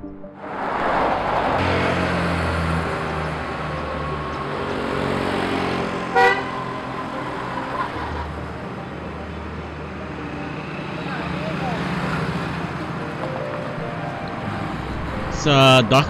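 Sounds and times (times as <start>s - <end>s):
road traffic passing: 0.0s - 16.0s
short vehicle horn toot: 6.1s - 6.6s.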